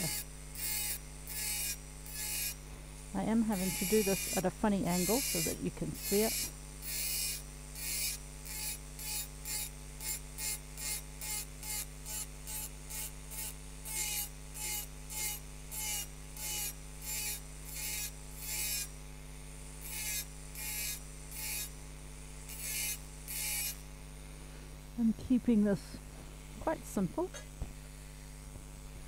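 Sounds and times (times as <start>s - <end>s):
engraving burr grinding glass: 0.0s - 19.0s, 19.7s - 24.0s.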